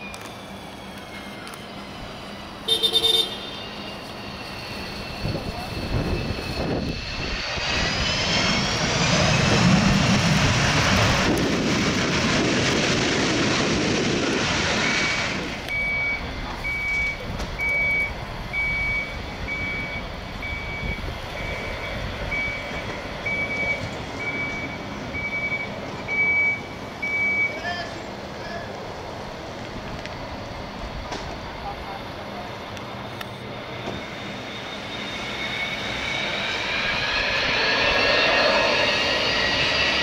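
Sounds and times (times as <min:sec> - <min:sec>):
vehicle reversing beeper: 0:00.0 - 0:08.8, 0:14.7 - 0:28.0, 0:33.0 - 0:40.0
jet engine reverse thrust: 0:00.0 - 0:40.0.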